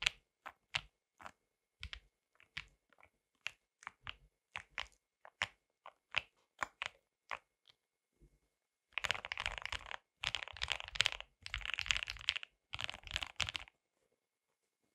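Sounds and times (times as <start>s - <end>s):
mechanical keyboard typing: 9.0s - 13.7s.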